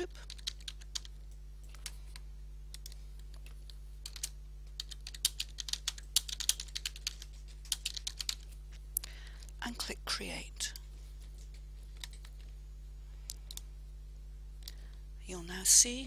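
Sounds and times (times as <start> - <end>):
steady low hum: 0.0 - 16.0
typing on computer keyboard: 0.1 - 1.9, 2.8 - 8.5, 11.3 - 12.3.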